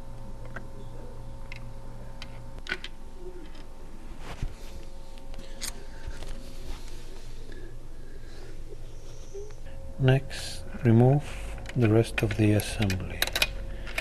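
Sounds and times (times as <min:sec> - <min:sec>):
steady low hum: 0:00.0 - 0:14.0
small metallic clicks: 0:11.6 - 0:14.0.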